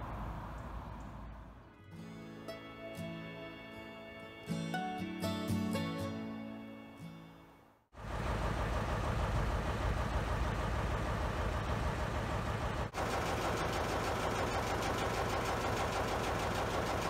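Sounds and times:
diesel locomotive idling: 8.0s - 17.0s.

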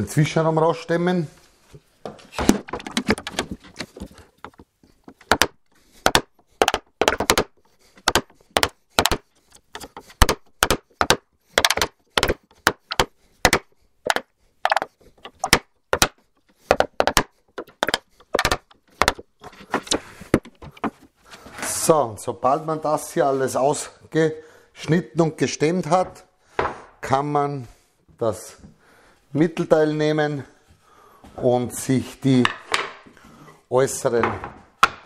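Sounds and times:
wooden mallet striking chisel: 2.4s - 21.1s, 34.2s - 35.0s.

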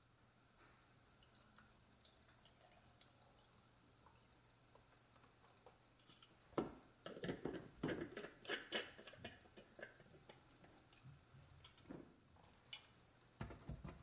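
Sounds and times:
plastic scraping on glass: 7.0s - 11.0s.

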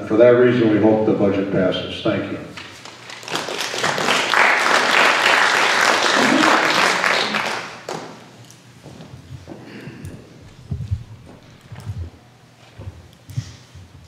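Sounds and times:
small audience applauding: 2.6s - 8.3s.

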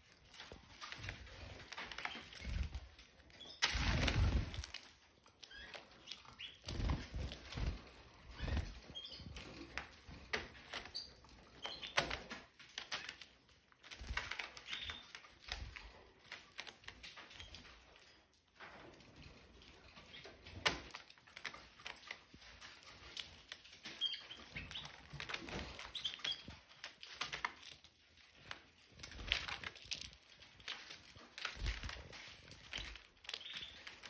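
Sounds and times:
canary chirps: 0.0s - 19.0s, 19.6s - 34.0s
birds pecking and scratching: 0.0s - 34.0s
wings fluttering: 0.3s - 12.2s, 30.6s - 34.0s.

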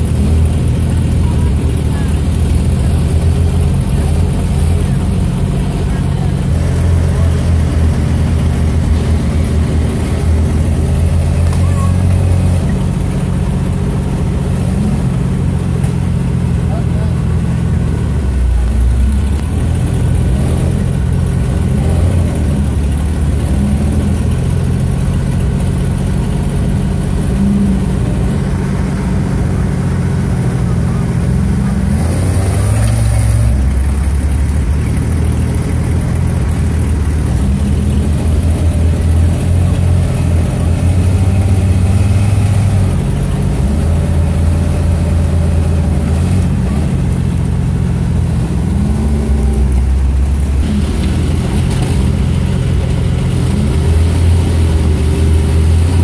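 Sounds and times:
engine revving under load: 0.0s - 56.0s.

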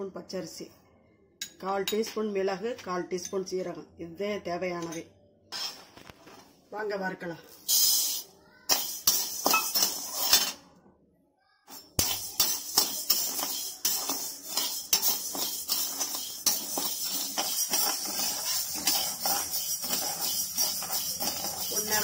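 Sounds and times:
steel ladle scraping pan: 5.5s - 6.0s, 7.6s - 10.6s, 11.7s - 22.0s
lentils pouring into pan: 7.5s - 10.5s, 12.0s - 22.0s.

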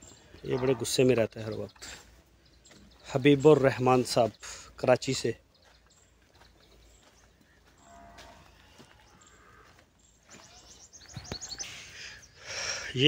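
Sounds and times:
cow mooing: 0.5s - 0.9s, 7.8s - 9.7s
high bird chirps: 5.5s - 12.8s.

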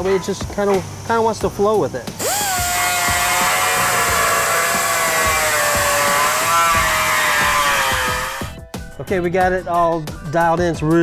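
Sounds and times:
air die grinder whining: 2.2s - 8.6s.

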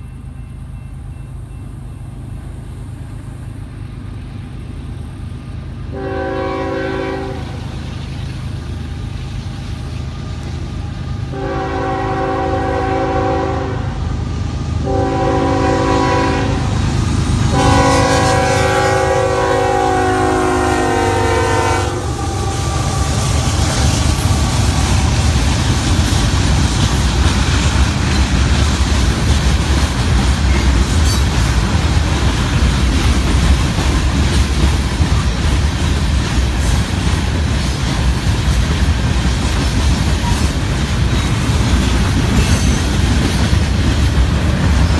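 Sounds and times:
locomotive engines rumbling: 0.0s - 44.9s
locomotive air horn blasts: 5.9s - 7.7s, 11.3s - 14.1s, 14.8s - 16.8s, 17.5s - 23.6s
train wheels clacking over rail joints: 22.3s - 44.9s.

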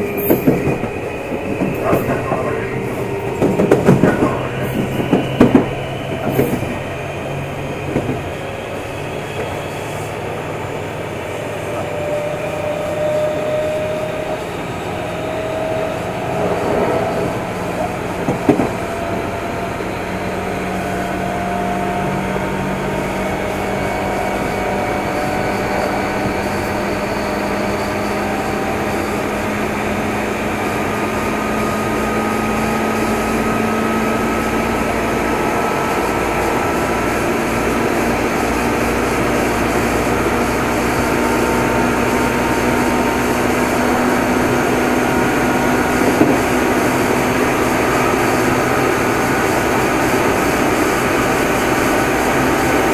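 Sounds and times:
electric train motor hum: 0.0s - 52.9s.

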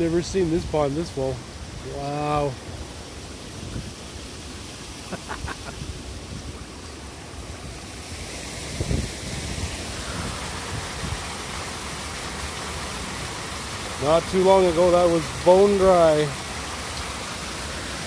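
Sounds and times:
rushing flowing water: 0.0s - 18.0s
wind on microphone: 3.5s - 4.0s, 8.6s - 11.3s.

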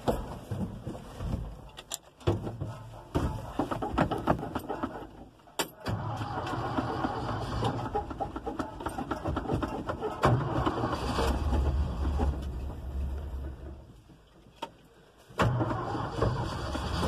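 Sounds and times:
starter motor cranking: 5.9s - 12.4s, 15.4s - 17.0s.

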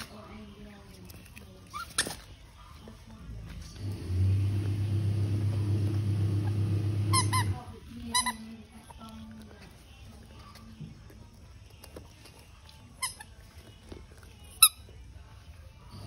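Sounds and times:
engine hum: 3.7s - 7.8s.

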